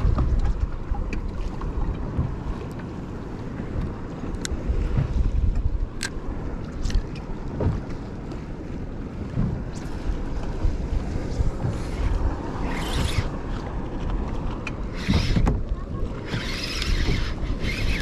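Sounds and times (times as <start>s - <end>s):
water lapping against kayak: 0.0s - 18.0s
wind buffeting microphone: 0.0s - 18.0s.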